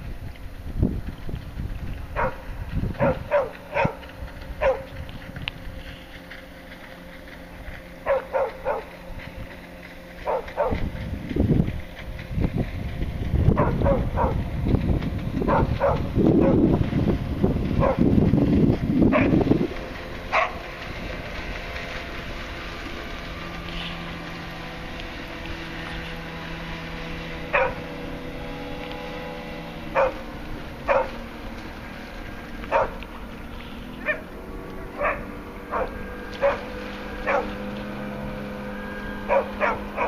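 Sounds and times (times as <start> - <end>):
outboard motor drone: 0.0 - 40.0
dog barking: 2.2 - 2.4, 3.0 - 4.0, 4.6 - 4.8, 8.1 - 8.9, 15.5 - 16.6, 27.5 - 27.8, 30.0 - 30.2, 30.9 - 31.1, 32.7 - 32.9, 35.0 - 36.7, 37.3 - 37.5, 39.3 - 40.0.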